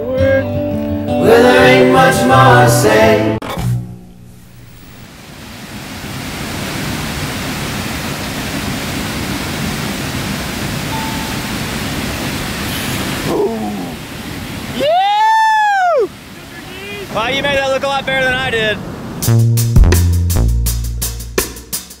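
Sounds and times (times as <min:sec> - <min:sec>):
waterfall rushing roar: 0:04.5 - 0:19.2
person whooping: 0:14.8 - 0:16.1.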